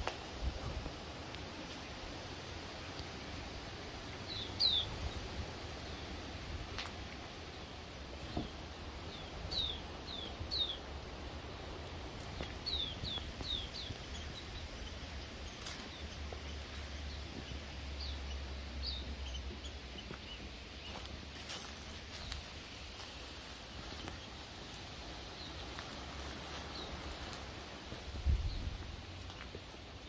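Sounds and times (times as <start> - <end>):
bird chirping: 4.2 - 6.2, 7.5 - 11.0, 12.2 - 22.5.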